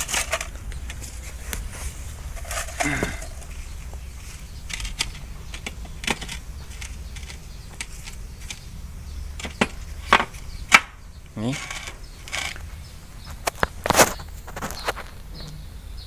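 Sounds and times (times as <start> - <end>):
small metal parts clicking: 0.0 - 1.1, 4.6 - 8.7, 11.5 - 12.6
steady low hum: 0.0 - 14.4.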